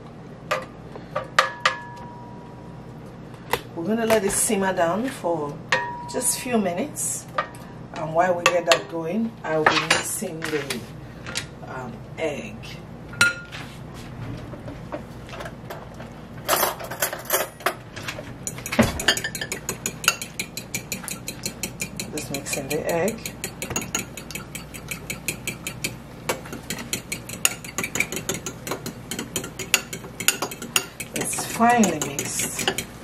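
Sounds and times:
utensil clattering: 18.4s - 33.0s
utensil beating eggs in glass bowl: 18.5s - 33.0s.

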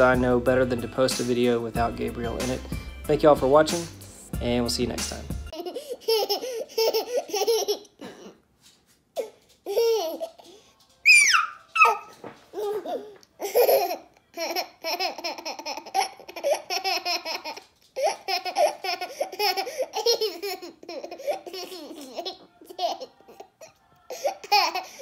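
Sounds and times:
toddler giggling: 5.5s - 8.3s, 9.2s - 10.5s, 11.1s - 25.0s.

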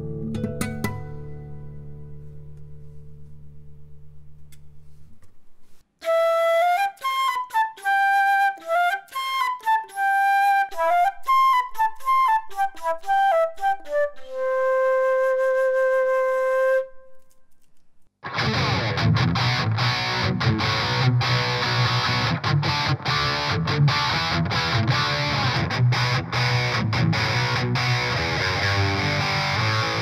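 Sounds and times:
flute melody: 6.0s - 17.5s.

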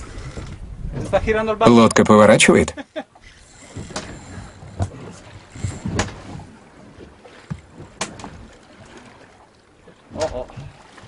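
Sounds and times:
wind noise on microphone: 0.0s - 2.1s, 3.3s - 6.5s
water slapping against boat hull: 3.5s - 11.0s.

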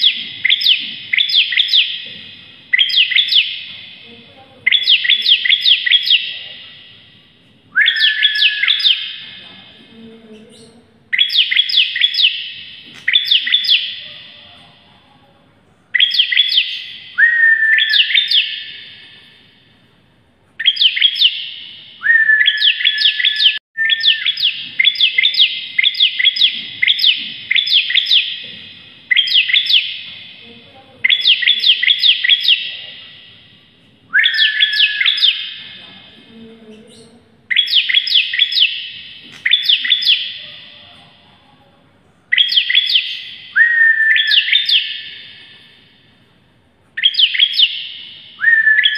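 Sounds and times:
bird singing sharp high notes: 0.0s - 4.1s, 4.7s - 9.3s, 10.5s - 14.4s, 15.9s - 19.5s, 20.6s - 28.4s, 29.1s - 30.1s, 31.0s - 32.8s, 34.1s - 35.6s, 36.9s - 40.8s, 42.3s - 45.9s, 47.0s - 48.9s.

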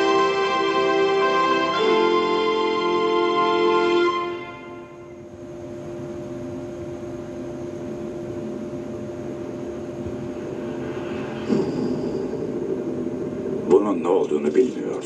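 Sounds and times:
low rumbling drone: 7.9s - 15.0s
loud trailer hit: 10.1s - 14.9s.

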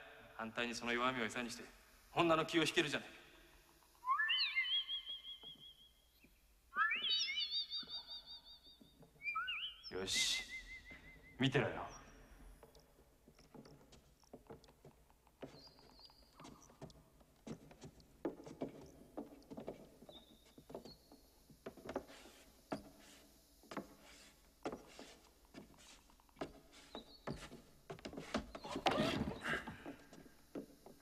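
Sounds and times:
footsteps on hard stage floor: 12.3s - 28.8s
shoes scuffing: 21.7s - 30.3s.

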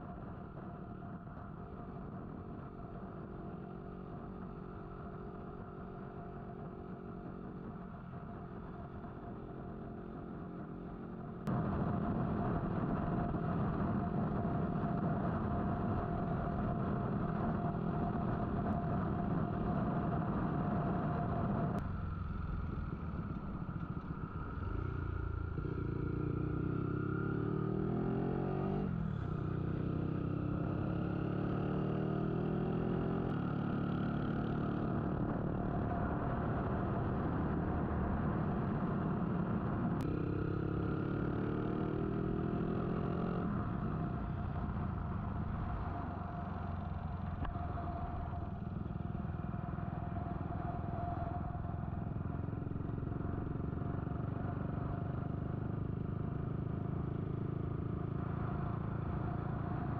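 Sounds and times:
motorcycle engine running: 0.0s - 31.5s, 32.4s - 59.9s
wind rush on microphone: 11.5s - 21.8s.

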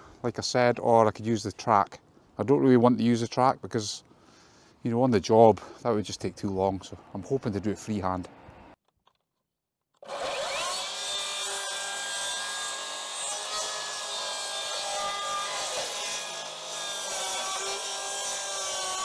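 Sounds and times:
circular saw cutting wood: 10.0s - 19.0s.

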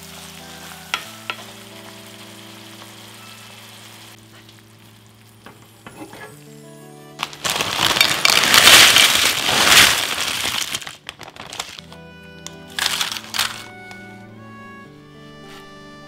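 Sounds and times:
chips crackling into a dish: 0.0s - 2.0s, 7.2s - 12.0s, 12.7s - 14.0s
soft background music: 0.0s - 16.0s.

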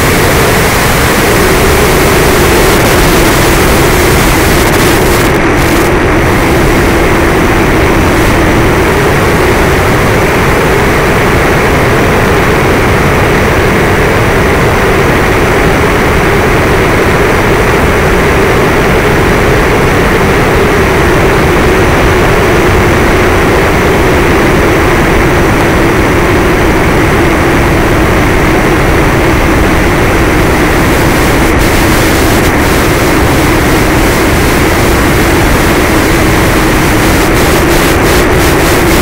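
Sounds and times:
wind noise rushing: 0.0s - 39.0s.

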